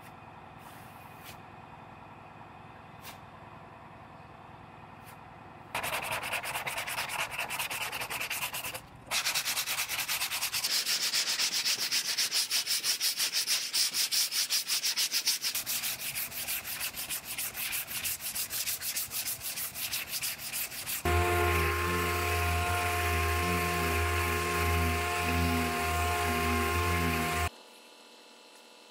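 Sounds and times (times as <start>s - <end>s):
sandpaper scraping strokes: 5.8s - 27.5s.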